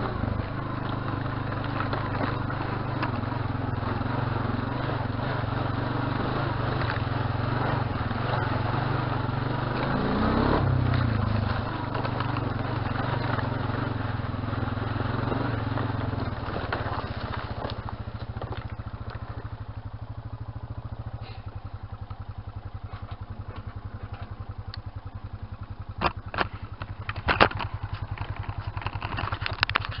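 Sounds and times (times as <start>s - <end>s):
quad bike engine idling: 0.0s - 30.0s
sharp knocks and clatter: 10.9s - 14.0s, 25.9s - 30.0s.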